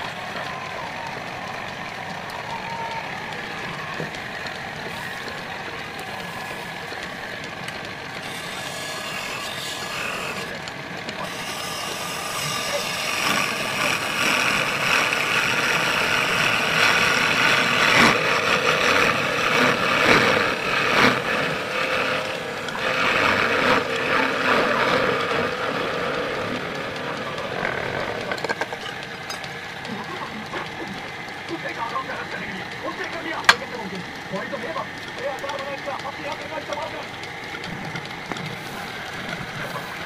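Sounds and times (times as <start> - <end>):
wood lathe running: 0.0 - 40.0
sanding scraping on spinning wood: 4.8 - 28.4.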